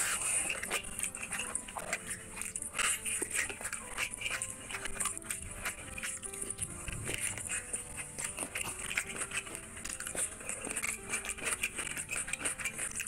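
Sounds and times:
wet chewing and lip smacking: 0:00.0 - 0:13.0.

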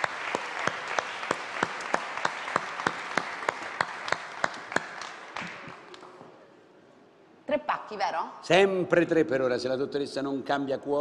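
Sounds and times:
audience applauding: 0:00.0 - 0:06.2
sharp claps: 0:00.0 - 0:06.2.

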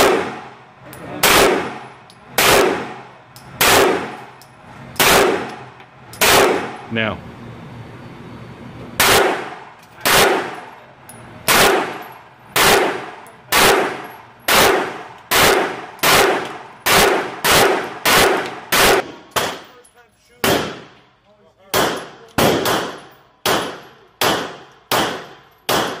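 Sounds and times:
pistol shots echoing indoors: 0:00.0 - 0:00.6, 0:01.2 - 0:04.2, 0:05.0 - 0:05.6, 0:06.2 - 0:06.8, 0:09.0 - 0:10.8, 0:11.4 - 0:19.7, 0:20.4 - 0:21.0, 0:21.6 - 0:26.0.

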